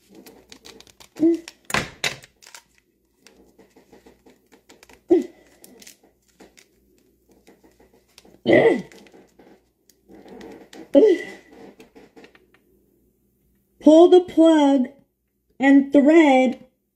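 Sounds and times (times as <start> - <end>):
plastic parts clicking and rustling: 0.0 - 11.0.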